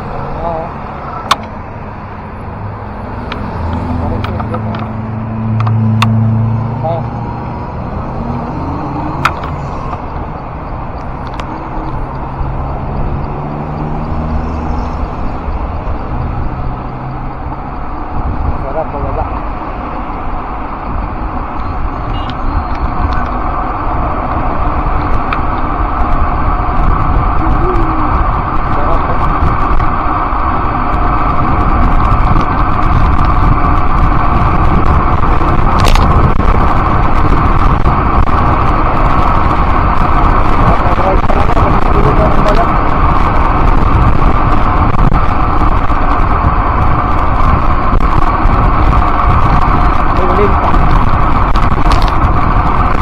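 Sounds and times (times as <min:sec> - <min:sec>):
wind and road noise: 0:00.0 - 0:53.0.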